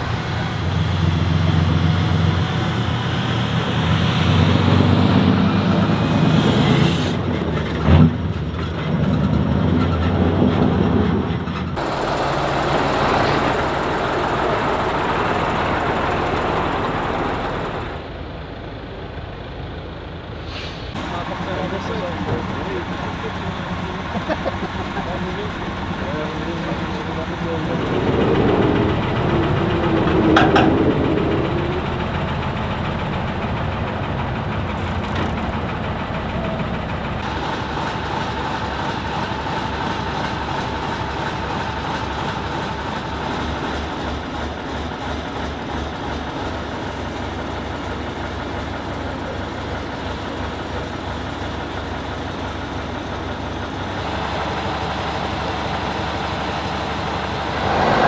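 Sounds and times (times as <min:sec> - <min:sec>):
diesel truck engines running: 0:00.0 - 0:58.0
steady whine: 0:25.1 - 0:34.0.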